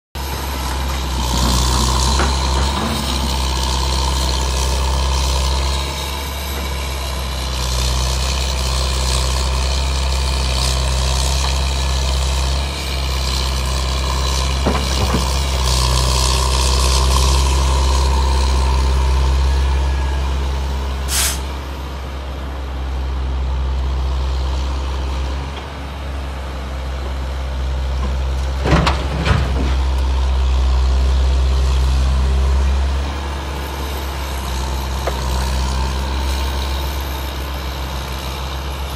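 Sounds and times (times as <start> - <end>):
heavy diesel engines droning: 0.2 - 38.9
short sharp hiss: 21.1 - 21.5.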